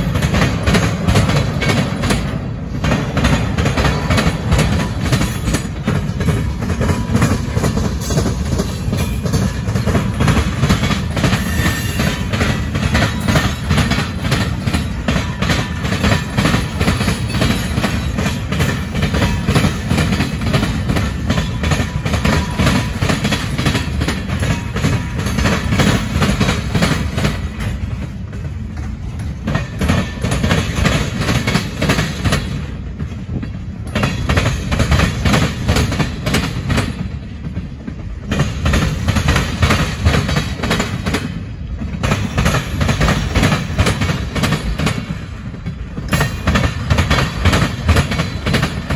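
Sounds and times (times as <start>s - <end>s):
freight train rumble: 0.0s - 48.9s
train wheels clacking on rail joints: 0.0s - 48.9s.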